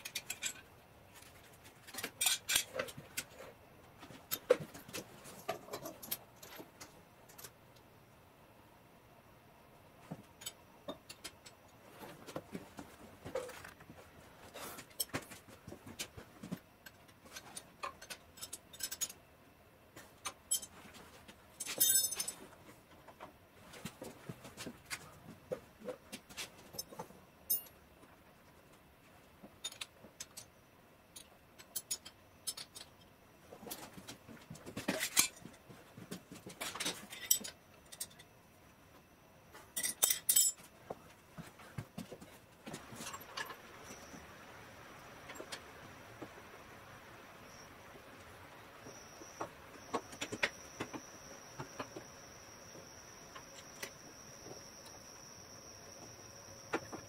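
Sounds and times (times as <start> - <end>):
metallic clinks of wrenches: 21.6 - 22.4, 39.8 - 40.6.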